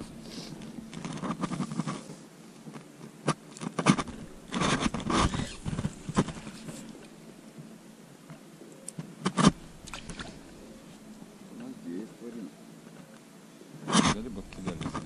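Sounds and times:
fishing tackle scraping and knocking: 3.6 - 7.1.

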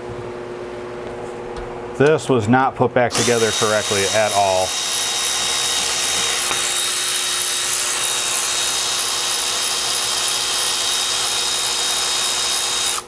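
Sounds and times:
cordless ratchet whirring: 3.1 - 13.0.

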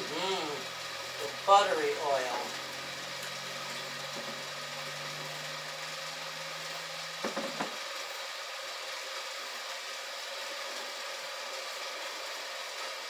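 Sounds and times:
popcorn machine humming and hissing: 0.0 - 13.0
short knocks: 7.2 - 7.8.

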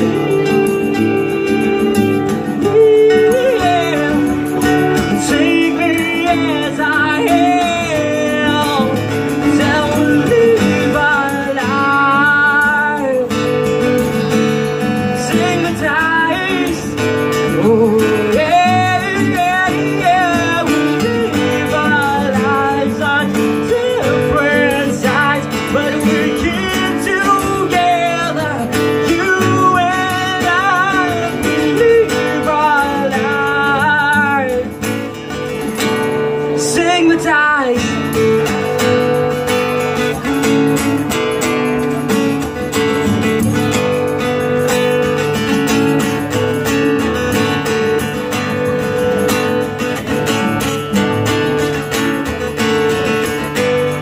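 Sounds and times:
man singing: 0.0 - 13.9, 14.7 - 35.2, 36.0 - 39.3
cajon beat: 0.0 - 54.0
strummed guitars: 0.0 - 54.0.

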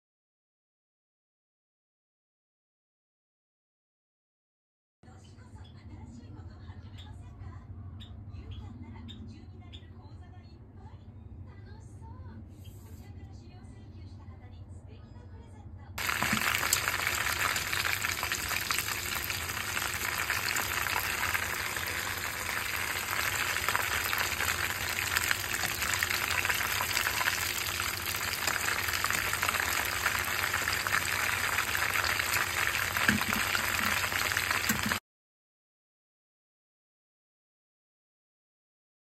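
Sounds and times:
food sizzling in hot oil: 16.0 - 35.0.

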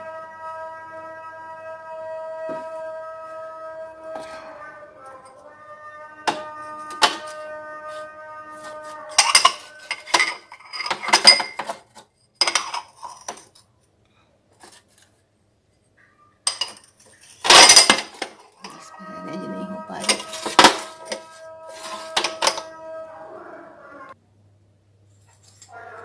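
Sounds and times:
ceramic bowls clinking and clattering: 6.3 - 7.4, 9.1 - 13.7, 16.4 - 22.7.

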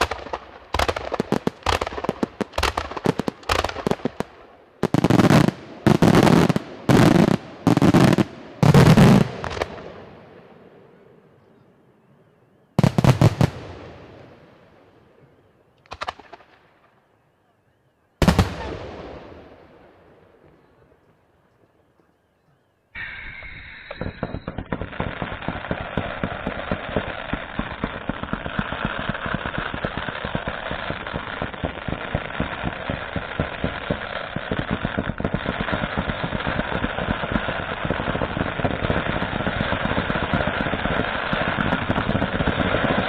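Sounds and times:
fireworks pops and crackles: 0.0 - 10.0, 15.7 - 16.9, 23.4 - 43.0.

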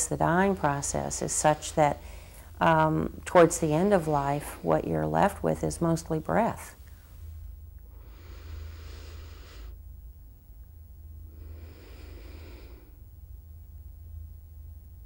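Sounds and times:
low steady hum: 0.0 - 15.0
person breathing: 1.2 - 2.6, 7.9 - 9.8, 11.2 - 13.0.

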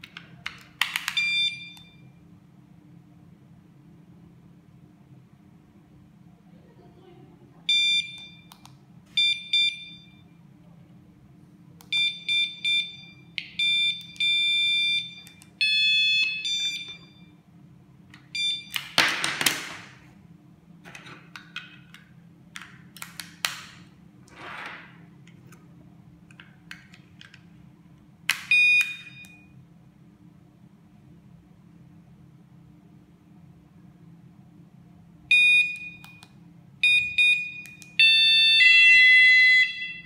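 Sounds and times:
door alarm sensors beeping: 1.1 - 2.1, 7.7 - 8.6, 9.2 - 10.3, 11.9 - 17.4, 18.3 - 18.9, 28.5 - 29.6, 35.3 - 36.2, 36.8 - 40.0
steady alarm tone: 11.9 - 17.4, 36.8 - 40.0.

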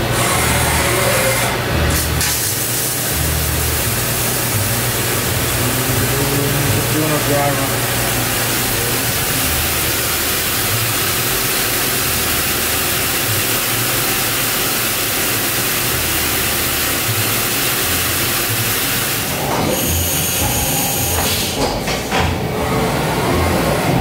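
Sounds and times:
machine hiss: 2.0 - 22.2
low wavering machine hum: 3.0 - 13.8.

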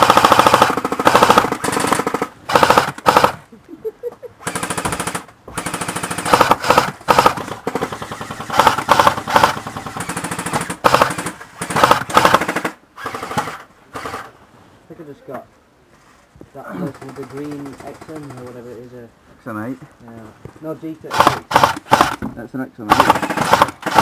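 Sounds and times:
airsoft gun full-auto bursts: 0.0 - 3.4, 4.4 - 14.3, 21.1 - 22.2, 22.9 - 24.0.

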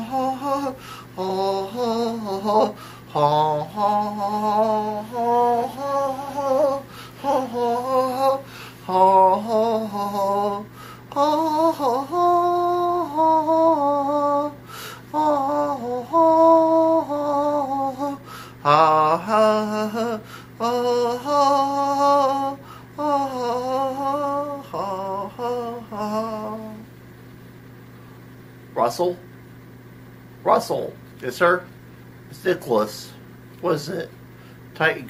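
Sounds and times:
person singing slow melody: 0.0 - 26.9
steady low hum: 0.0 - 35.0.

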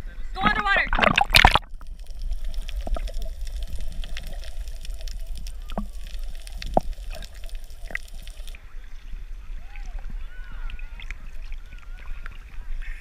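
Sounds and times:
small clicks and pops: 0.5 - 8.6
muffled underwater rumble: 0.9 - 13.0
faint watery hiss: 1.3 - 10.2.

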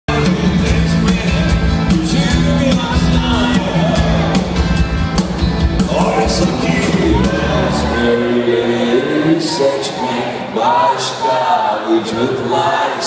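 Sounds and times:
steady drumbeat: 0.1 - 8.1
rock band playing live: 0.1 - 9.2.

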